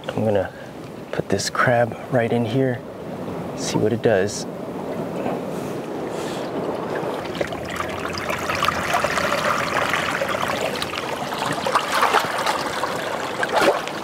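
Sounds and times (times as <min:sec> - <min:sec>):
seawater trickling in tide pool: 0:04.7 - 0:14.0.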